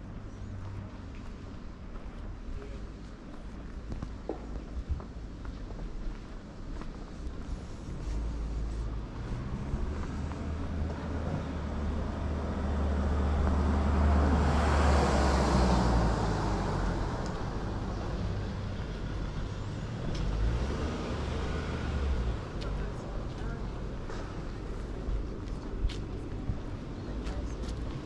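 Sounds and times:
steady low rumble: 0.0s - 13.9s, 21.3s - 28.0s
car passing by: 9.1s - 18.8s, 19.8s - 22.7s.

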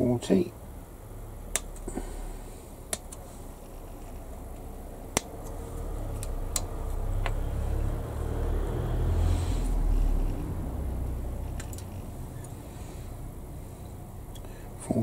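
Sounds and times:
low rumble: 4.8s - 13.7s.

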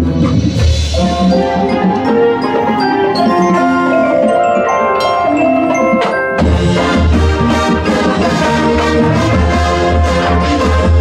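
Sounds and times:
mallet percussion ringing notes: 0.6s - 8.2s
marching band hit: 5.7s - 11.0s.

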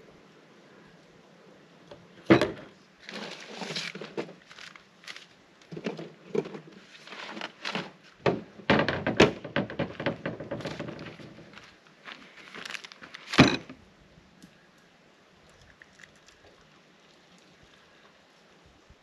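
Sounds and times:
cooler lid thunks and clatter: 2.3s - 2.7s, 7.7s - 11.4s
footsteps on dry pine needles: 3.1s - 5.4s, 11.1s - 13.4s.

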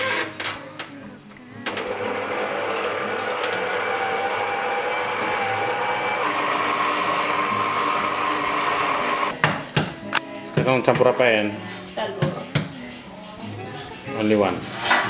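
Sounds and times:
electric stand mixer whine: 1.7s - 9.3s.

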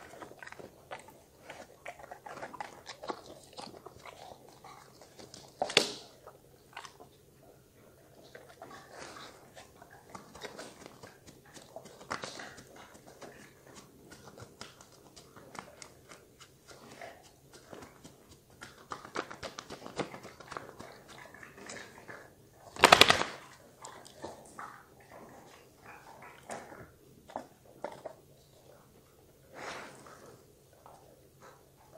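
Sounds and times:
dog ears flapping from head shake: 22.8s - 23.4s.

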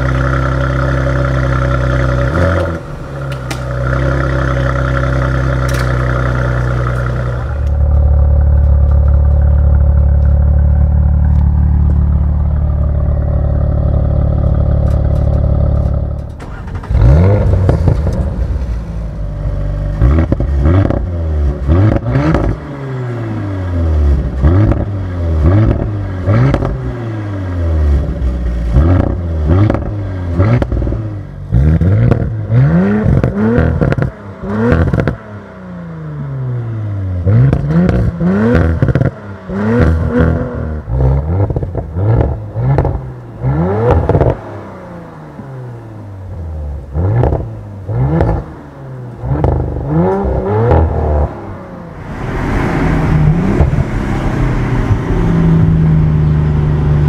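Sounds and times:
exhaust crackles and pops: 0.0s - 22.6s, 24.2s - 26.9s, 27.9s - 31.0s, 31.6s - 35.2s, 37.2s - 44.4s, 46.9s - 48.5s, 49.2s - 51.4s
car exhaust revving: 0.0s - 57.0s.

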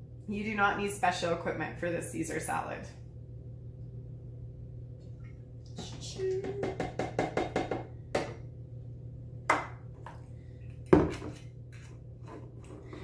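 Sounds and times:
knock and clack on countertop: 6.5s - 8.4s, 9.5s - 10.2s, 10.9s - 11.4s.

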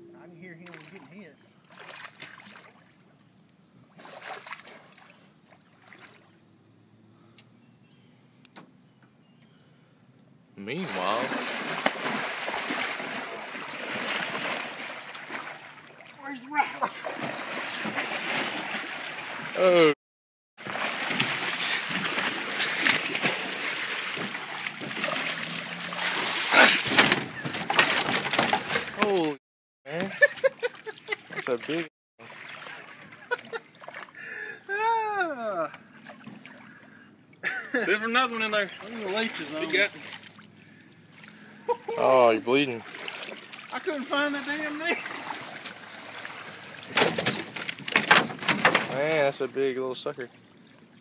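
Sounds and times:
water lapping: 0.5s - 3.1s, 3.8s - 6.4s, 10.6s - 20.0s, 20.6s - 48.0s
water sloshing and splashing: 0.5s - 3.1s, 3.9s - 6.4s, 10.7s - 20.0s, 20.6s - 34.5s, 35.4s - 51.0s
fish thrashing in water: 10.8s - 16.2s, 16.8s - 19.7s, 20.6s - 29.3s, 42.8s - 43.8s.

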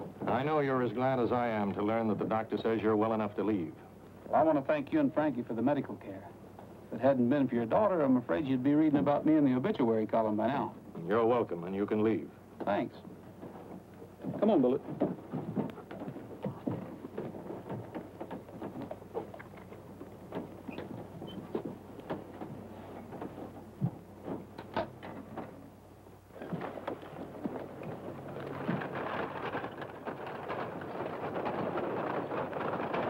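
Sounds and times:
bustle of people and horses: 0.0s - 33.0s
footsteps and knocks: 12.6s - 33.0s.

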